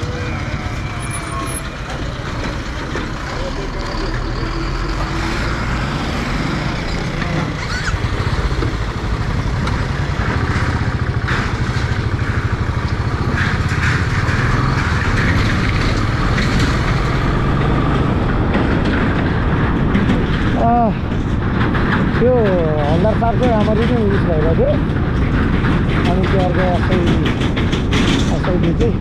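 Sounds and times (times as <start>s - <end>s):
road noise: 0.0s - 29.0s
motorcycle engine running: 6.0s - 28.9s.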